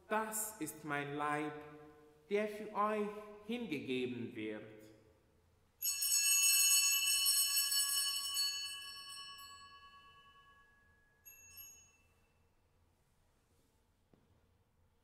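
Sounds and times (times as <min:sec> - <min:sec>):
altar bells ringing: 0:05.8 - 0:12.3.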